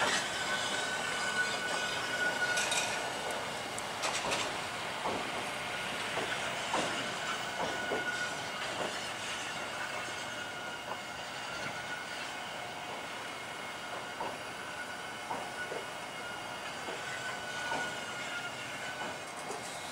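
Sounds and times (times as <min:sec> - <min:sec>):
wheels clicking over rail joints: 0:00.0 - 0:09.1
subway train rolling: 0:00.0 - 0:19.9.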